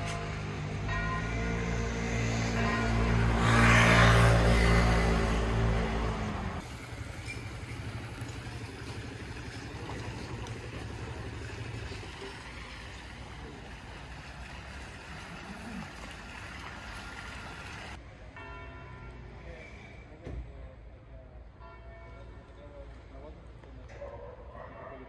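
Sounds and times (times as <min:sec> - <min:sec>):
low engine rumble: 0:05.3 - 0:18.0.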